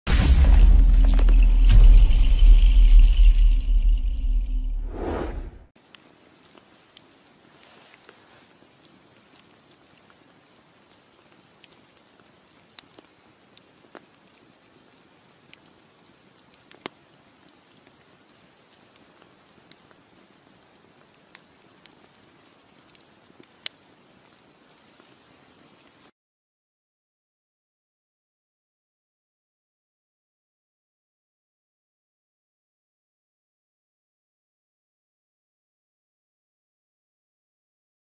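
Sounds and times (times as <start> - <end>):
logs popping and crackling: 0.1 - 4.0, 5.8 - 26.1
campfire hissing: 5.8 - 26.1.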